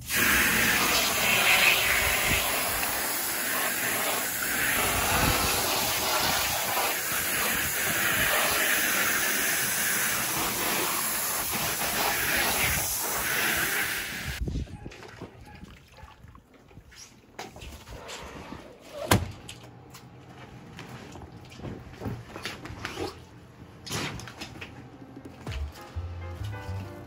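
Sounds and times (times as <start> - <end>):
hose spray hissing on vinyl: 0.0 - 14.4.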